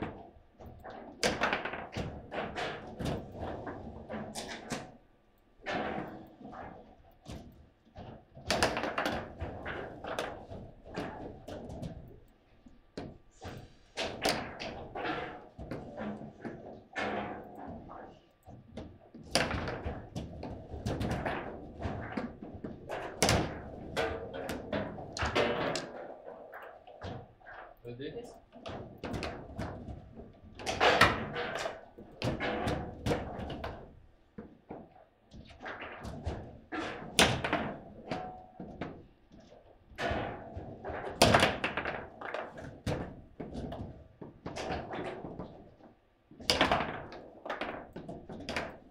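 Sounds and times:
table football knocks and clacks: 0:00.0 - 0:05.0, 0:05.6 - 0:48.9
foosball ball struck: 0:46.4 - 0:48.8.

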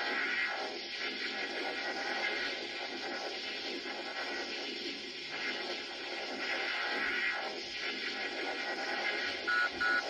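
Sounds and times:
electronic hiss-hum: 0:02.3 - 0:10.0
short high beeps: 0:09.5 - 0:10.0.

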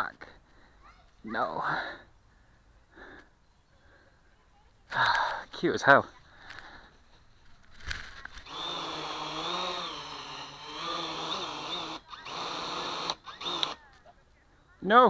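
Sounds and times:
drone motors whining: 0:08.4 - 0:13.8.

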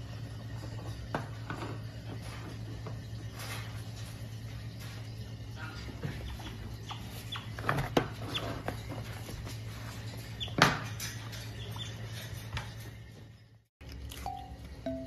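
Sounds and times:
otter squeaking: 0:06.1 - 0:09.3.

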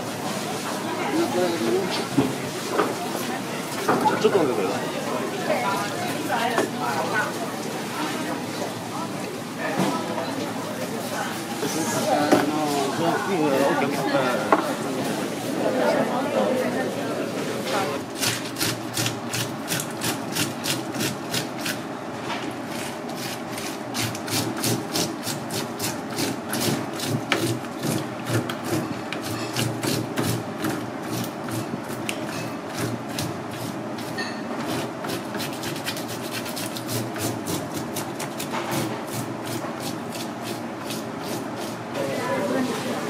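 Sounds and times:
scraping scales off fish: 0:32.7 - 0:41.9.

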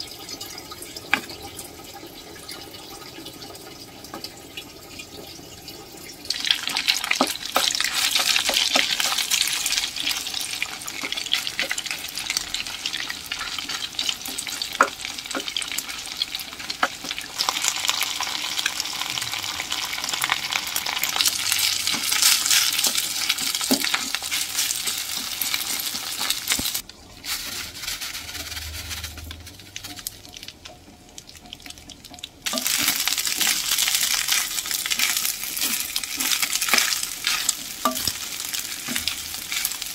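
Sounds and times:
food sizzling in hot oil: 0:05.8 - 0:39.9
spatula scraping a pan: 0:06.8 - 0:12.4.

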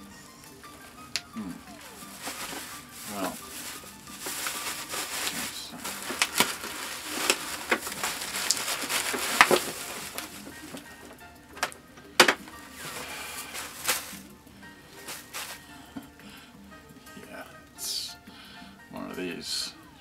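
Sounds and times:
bubble wrap crinkling and crackling: 0:00.0 - 0:15.7.

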